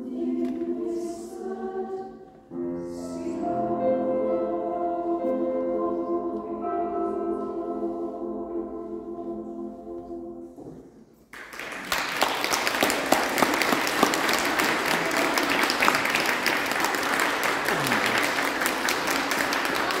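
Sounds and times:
choir holding a chord: 0.0 - 11.0
audience applause: 11.3 - 20.0.

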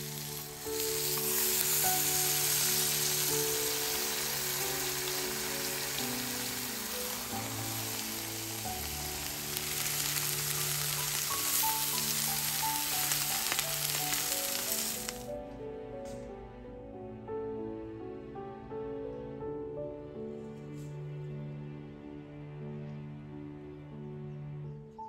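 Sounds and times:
lettuce sizzling on a griddle: 0.0 - 15.3
soft background music: 0.0 - 25.0.

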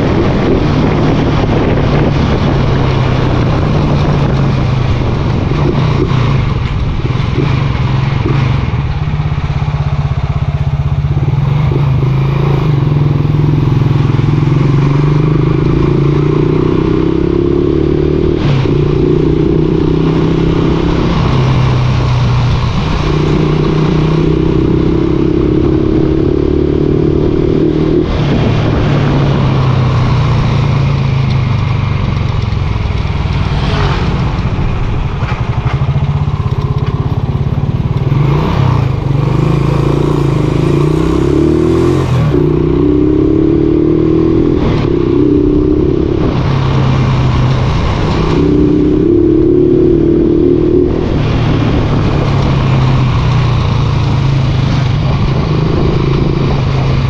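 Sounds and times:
motorcycle engine revving: 0.0 - 57.0.

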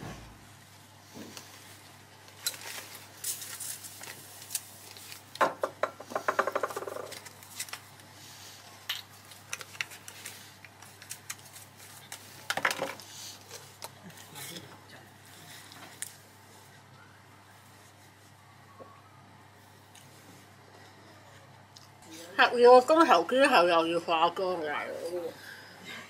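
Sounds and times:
small items clicking and rustling: 8.9 - 14.0.

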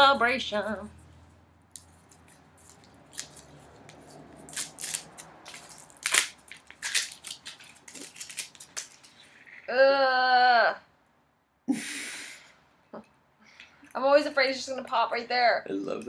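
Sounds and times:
foil crinkling: 1.8 - 9.6.

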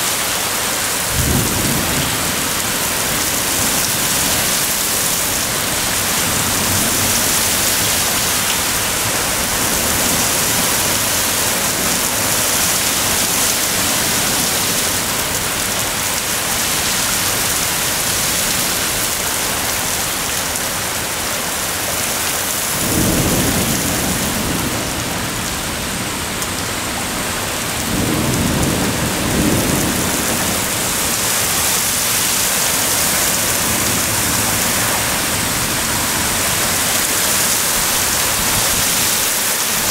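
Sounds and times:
heavy rain pouring: 0.0 - 39.9
low thunder rumbles: 1.0 - 18.3, 22.6 - 35.8.

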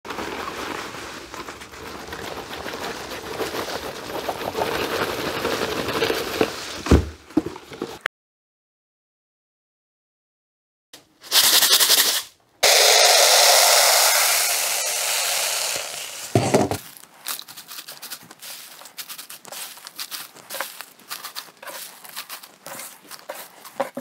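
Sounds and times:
dry leaves crackling: 0.1 - 6.7, 12.6 - 24.0
beads pouring into plastic bowl: 11.3 - 16.6, 17.3 - 23.7.

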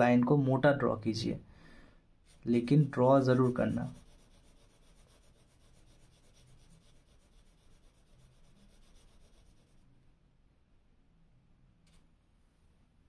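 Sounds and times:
pencil scratching on paper: 2.3 - 9.8.

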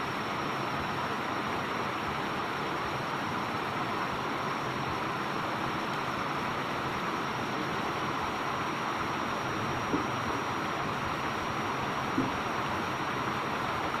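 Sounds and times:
water rushing over a weir: 0.0 - 14.0.

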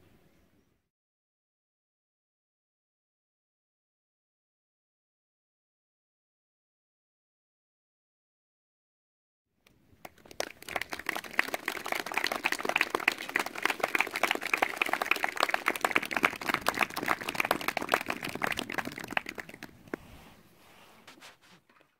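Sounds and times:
audience applauding: 10.0 - 20.0.

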